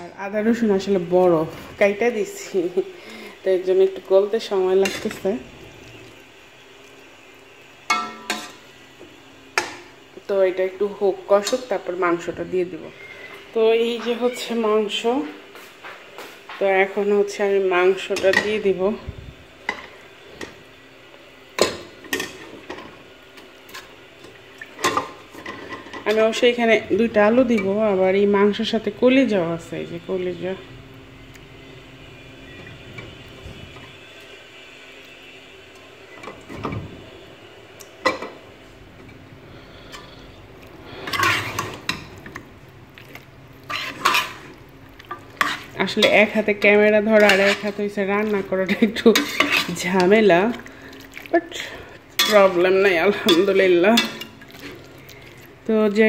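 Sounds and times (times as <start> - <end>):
metal spatula scraping a pot: 41.0 - 42.0, 43.6 - 44.5, 45.1 - 48.0, 49.0 - 50.2, 52.2 - 54.8.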